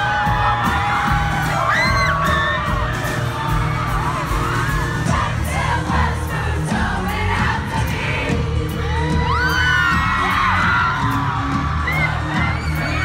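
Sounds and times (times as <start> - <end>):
fans screaming and whooping: 0.0 - 13.0
live pop band with singing: 0.0 - 13.0.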